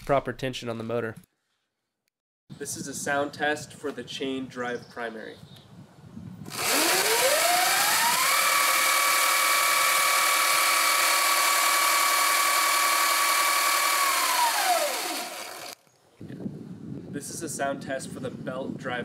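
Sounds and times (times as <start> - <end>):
chain drive whirring: 6.5 - 15.8
electric motor whine: 6.5 - 15.8.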